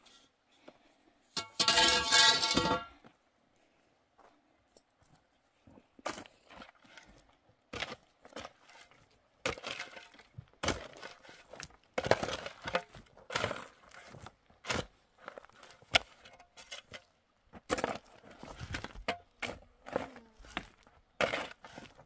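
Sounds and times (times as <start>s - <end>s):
shovel scraping stony soil: 1.4s - 3.0s, 6.1s - 17.1s, 17.7s - 22.0s.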